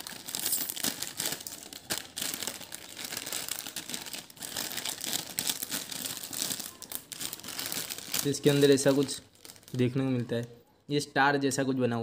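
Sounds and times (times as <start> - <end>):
snack packet crinkling: 0.0 - 10.1.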